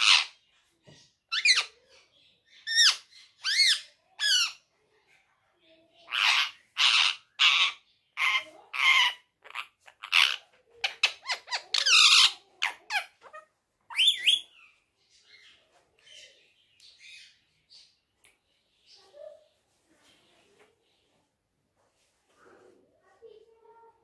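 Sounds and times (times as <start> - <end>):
parakeet squawking: 0.0 - 0.3, 1.3 - 1.8, 6.1 - 14.6.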